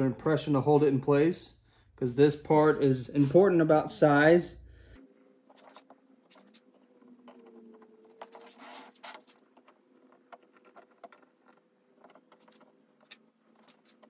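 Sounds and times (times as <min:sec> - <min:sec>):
blade cutting cork sheet: 0:07.4 - 0:14.0.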